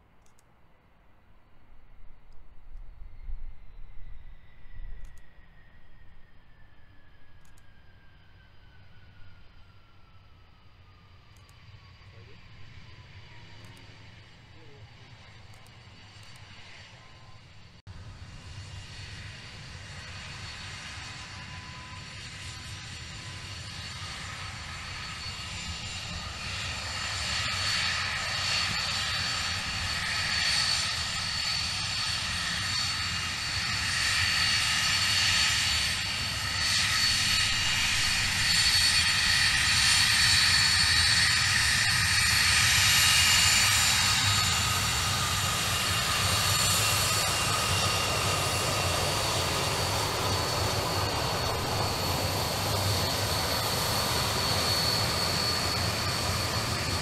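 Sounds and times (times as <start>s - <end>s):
jet engines whining: 1.6s - 57.0s.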